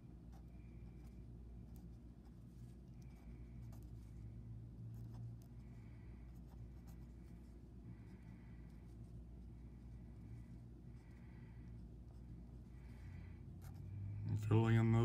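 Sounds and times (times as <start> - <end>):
low steady hum: 0.0 - 15.0
marker scratching on paper: 0.3 - 4.3, 4.9 - 7.5.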